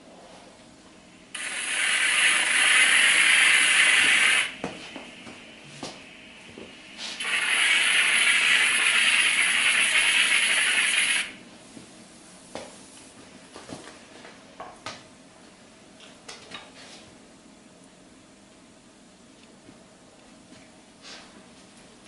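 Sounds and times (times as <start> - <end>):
spray gun hissing: 1.3 - 5.4, 6.1 - 11.4.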